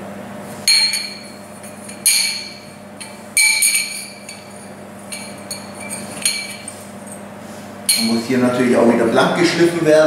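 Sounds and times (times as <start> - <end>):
steel tubes knocking together: 0.7 - 6.8.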